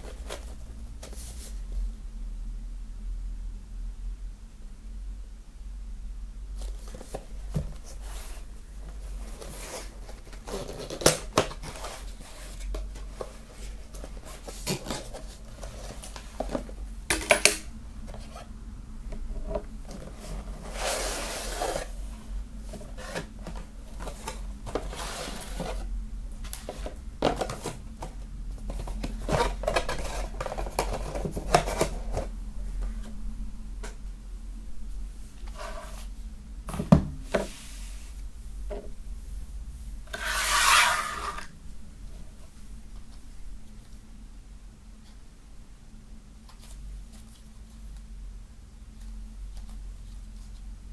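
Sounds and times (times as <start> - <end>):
rustling and sliding of card: 0.0 - 1.8, 6.6 - 16.8, 20.0 - 33.2, 35.4 - 36.2, 37.2 - 38.3, 40.1 - 41.5
steady low hum: 0.0 - 50.9.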